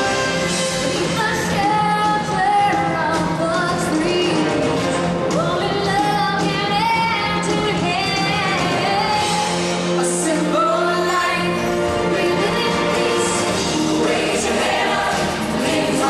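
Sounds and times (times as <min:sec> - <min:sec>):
live band playing: 0:00.0 - 0:16.0
people singing: 0:08.5 - 0:16.0.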